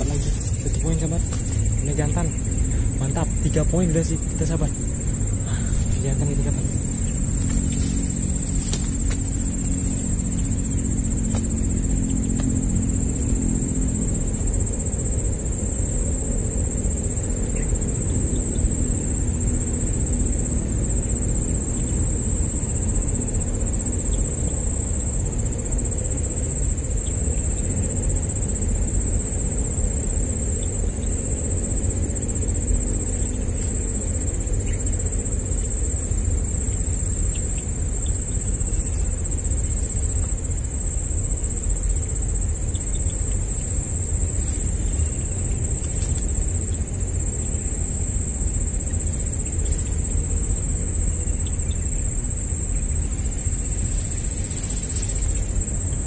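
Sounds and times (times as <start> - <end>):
insect trilling: 0.0 - 56.0
steady low rumble: 0.0 - 56.0.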